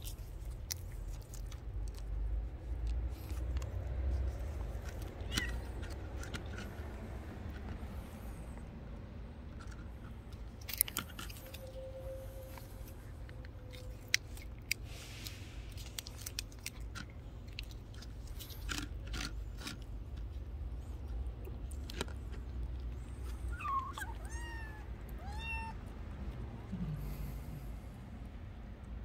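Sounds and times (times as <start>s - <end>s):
kittens crunching dry food: 0.0s - 29.0s
kitten mewing: 5.1s - 5.9s, 23.4s - 25.9s.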